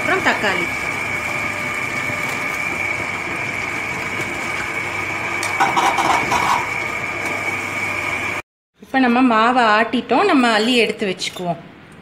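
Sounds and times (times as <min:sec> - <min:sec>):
wet grinder motor whining: 0:00.0 - 0:08.4.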